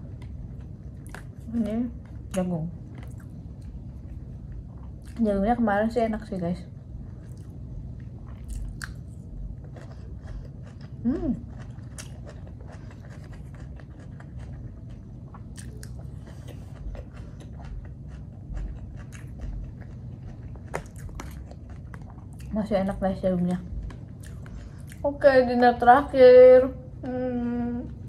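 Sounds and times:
chewing corn kernels: 7.2s - 23.0s.

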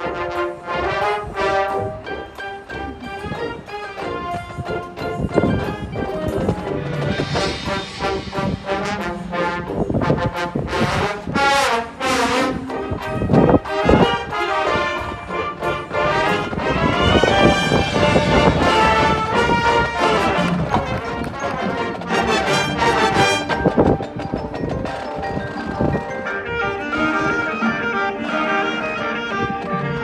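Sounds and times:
brass sustained chords: 0.0s - 2.3s, 6.6s - 23.7s
marching band playing: 0.0s - 30.0s
loud percussion hits: 6.8s - 11.1s.

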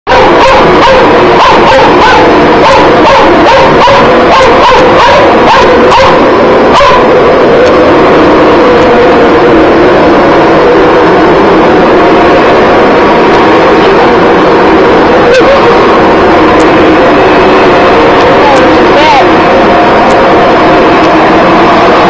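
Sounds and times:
dog barking: 0.1s - 7.2s
vacuum cleaner whine: 0.1s - 22.0s.

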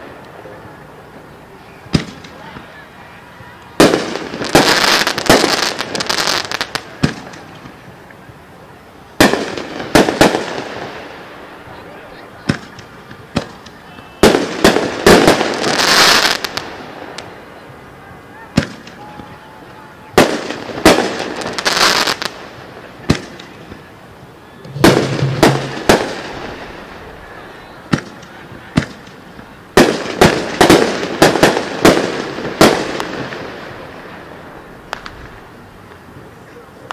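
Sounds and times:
fireworks crackling: 0.0s - 17.9s, 18.5s - 36.2s
fireworks booming: 3.8s - 7.8s, 9.2s - 11.4s, 12.4s - 17.1s, 20.2s - 23.8s, 24.6s - 29.0s, 29.8s - 34.0s
firework shells bursting: 24.6s - 26.8s.

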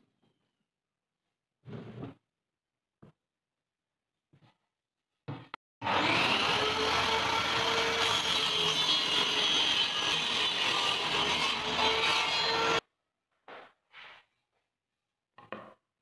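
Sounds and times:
table saw cutting wood: 5.8s - 12.8s.

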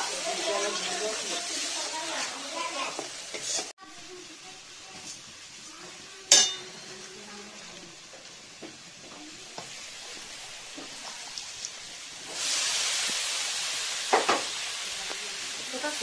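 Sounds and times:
cabbage sizzling in hot oil: 0.0s - 16.0s
paste frying with faint sizzle: 0.0s - 16.0s
sharp metal clank: 6.3s - 6.7s.

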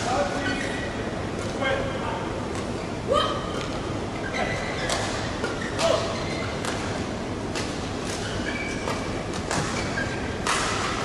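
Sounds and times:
shoe squeaks on court floor: 4.2s - 6.6s, 8.2s - 10.4s
rackets hitting shuttlecock: 10.4s - 11.0s.

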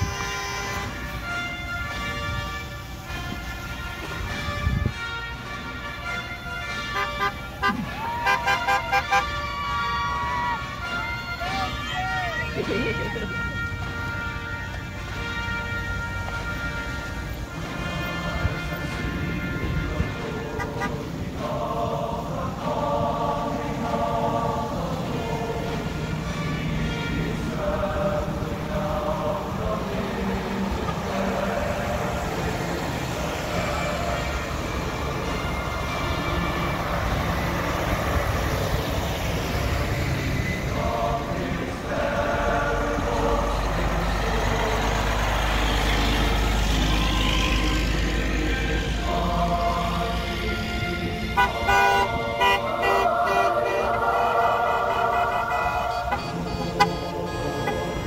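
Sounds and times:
truck air horn: 0.0s - 21.3s, 25.7s - 28.2s, 30.7s - 40.6s, 50.3s - 58.0s
choir singing held notes: 0.0s - 58.0s
dump trucks driving past: 0.0s - 58.0s.

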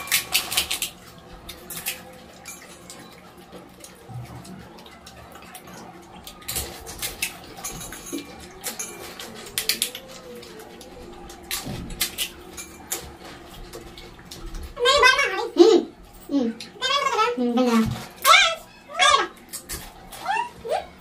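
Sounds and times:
clinks against steel bowls: 1.5s - 4.0s, 5.0s - 10.2s.

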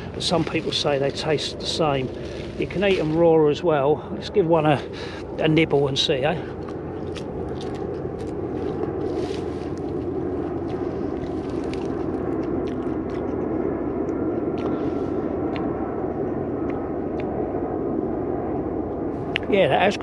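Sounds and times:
leaf being chewed: 0.0s - 3.3s, 5.3s - 15.8s
leaves rustling: 0.0s - 13.0s.

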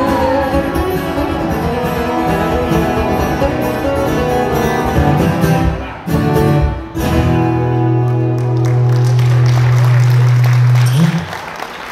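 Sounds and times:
acoustic guitars strumming: 0.0s - 9.5s
applause: 8.0s - 11.9s.

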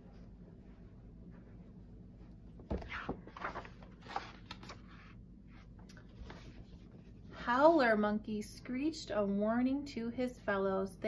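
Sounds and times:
page turning paper rustle: 2.7s - 7.0s.

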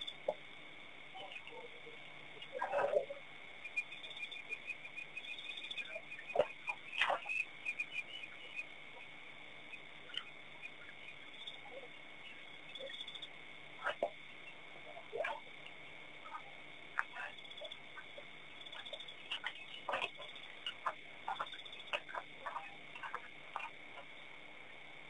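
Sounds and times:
fast chirps: 3.6s - 15.5s, 16.2s - 24.1s.

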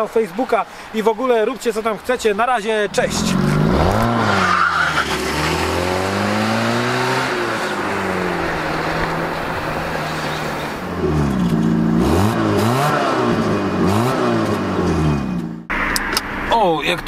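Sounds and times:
car engine accelerating: 2.9s - 16.5s
engine revving in blips: 3.0s - 16.3s.

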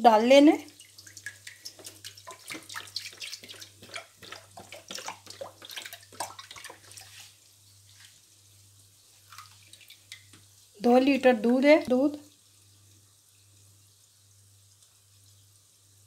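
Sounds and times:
milk pouring into metal pan: 0.7s - 8.2s.

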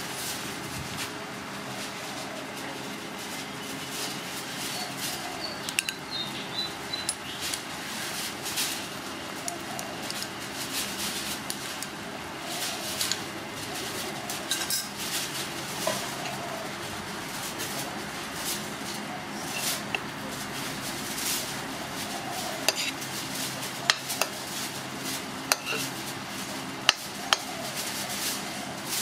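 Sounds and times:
steady background noise: 0.0s - 29.0s
metal spoon scraping cooking pot: 22.6s - 23.0s, 25.5s - 26.0s.

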